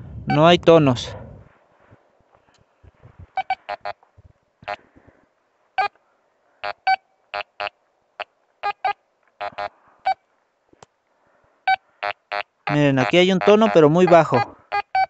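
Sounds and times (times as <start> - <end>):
metal detector beeping: 0.2 - 0.6, 3.3 - 3.9, 8.6 - 10.2, 11.7 - 15.0.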